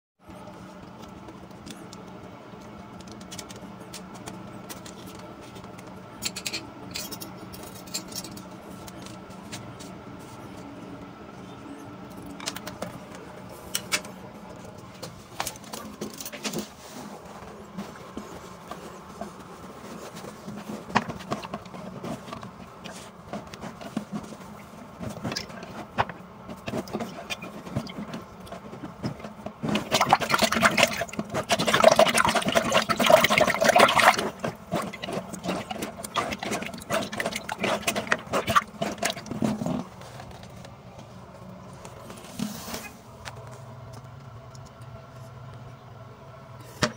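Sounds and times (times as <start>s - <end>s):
plastic tube worked in drain: 17.5s - 40.7s
water sloshing in toilet bowl: 20.3s - 39.9s.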